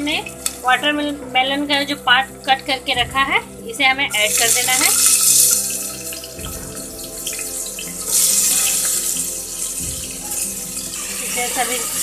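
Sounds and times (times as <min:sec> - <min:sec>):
food sizzling in hot oil: 0:04.1 - 0:12.0.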